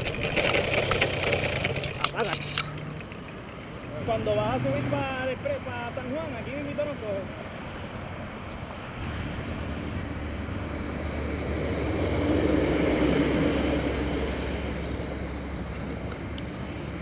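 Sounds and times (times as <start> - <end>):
motor passing by: 9.0 - 17.0.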